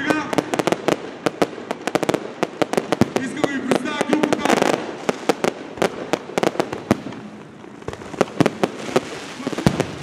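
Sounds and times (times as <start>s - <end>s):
fireworks bursting with sharp bangs: 0.0s - 10.0s.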